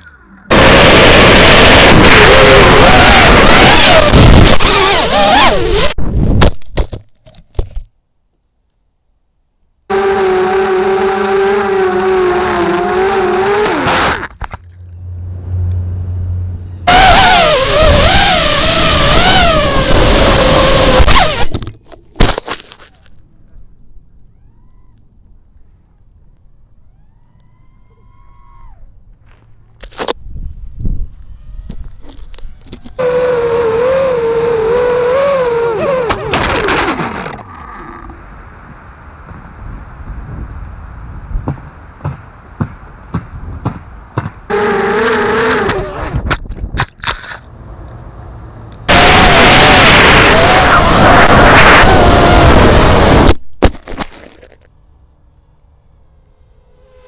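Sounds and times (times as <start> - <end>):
drone motors whining: 0.0 - 6.0, 9.9 - 21.7, 31.1 - 39.5, 48.7 - 53.4, 55.3 - 57.0
quadcopter crashing and scraping: 0.5 - 7.0, 11.1 - 14.6, 16.9 - 23.0, 31.7 - 37.5, 48.9 - 54.7.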